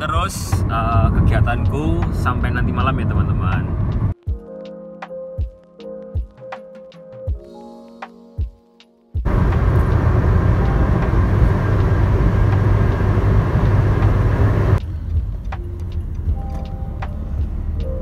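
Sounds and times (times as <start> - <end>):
car road noise rumble: 0.0 - 4.2, 9.2 - 18.0.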